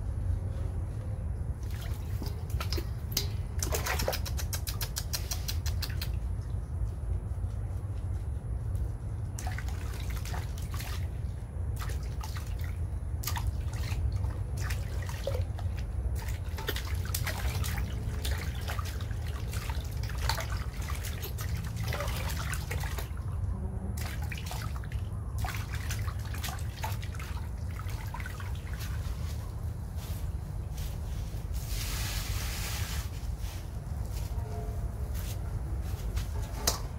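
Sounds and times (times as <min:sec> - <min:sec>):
water splashing in metal basin: 0:01.6 - 0:04.8, 0:09.4 - 0:11.2, 0:11.8 - 0:23.3, 0:24.0 - 0:29.1.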